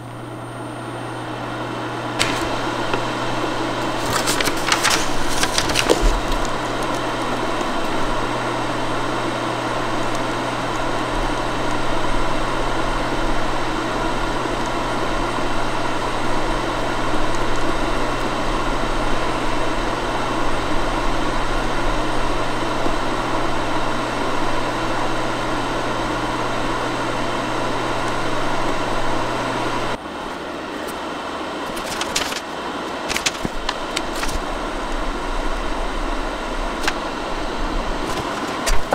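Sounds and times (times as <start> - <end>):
food dehydrator fan humming: 0.0 - 38.9.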